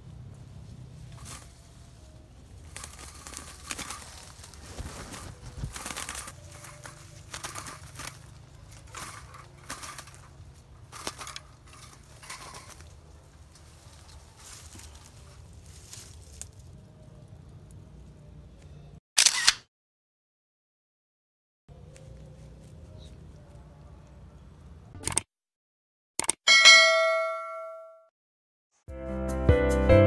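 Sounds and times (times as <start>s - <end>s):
leaves rustling: 0.0s - 18.2s, 21.7s - 24.6s
wire cage rattling: 2.6s - 16.3s.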